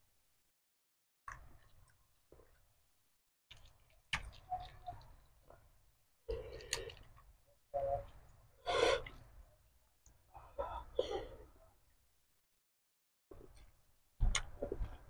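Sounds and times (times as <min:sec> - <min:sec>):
chewing: 0:06.3 - 0:07.3.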